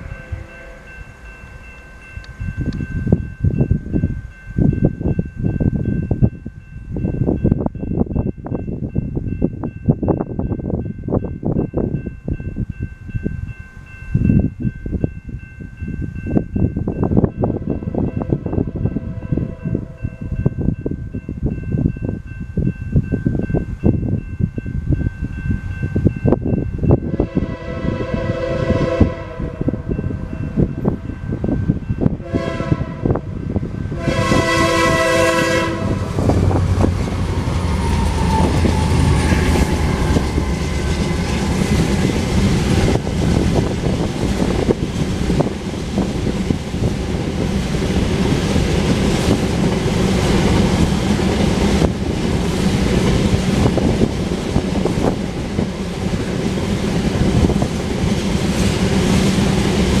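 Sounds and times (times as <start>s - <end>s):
locomotive horn blasts: 0.0s - 1.1s, 27.1s - 29.9s, 32.2s - 33.3s, 33.9s - 36.2s
locomotive engine rumble: 29.8s - 60.0s
train wheels clickety-clack: 34.2s - 60.0s.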